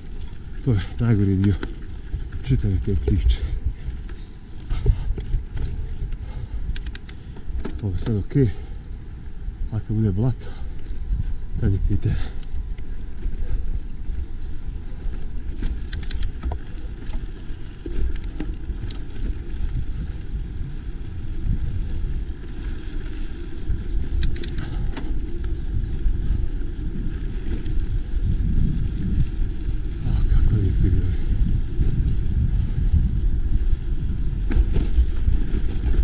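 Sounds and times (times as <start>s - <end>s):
bike clicks and rattles: 0.0s - 36.0s
bike tyres rumbling on dirt: 0.0s - 36.0s
wind on microphone: 0.0s - 36.0s.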